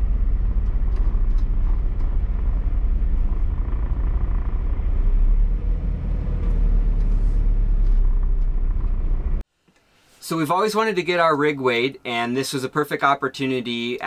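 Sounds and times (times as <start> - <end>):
vehicle rumble from inside cab: 0.0 - 9.4.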